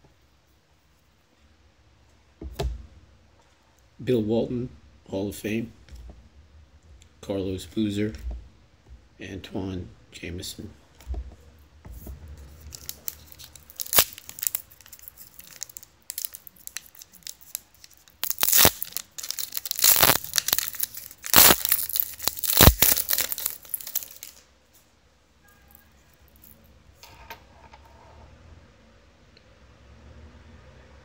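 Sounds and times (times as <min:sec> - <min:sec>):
foil wrapper tearing and crinkling: 0:12.5 - 0:24.4.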